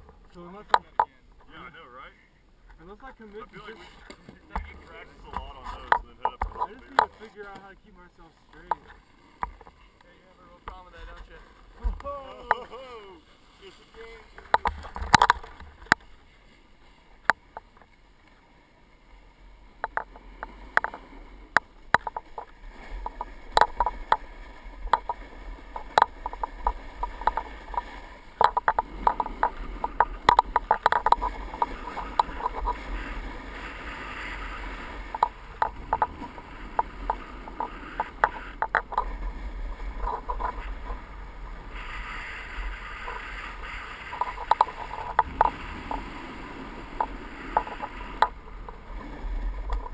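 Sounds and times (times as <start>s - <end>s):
sharp clicks and knocks: 4.1s - 7.7s, 8.6s - 9.8s, 14.4s - 16.1s, 19.8s - 32.8s, 35.1s - 39.1s, 44.1s - 46.0s, 47.0s - 48.8s
snowboard scraping on snow: 13.1s - 14.4s, 31.2s - 35.5s.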